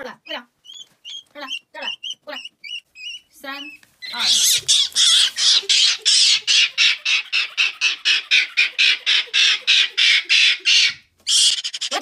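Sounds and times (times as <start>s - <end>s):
monkey shrieking: 4.0s - 12.0s.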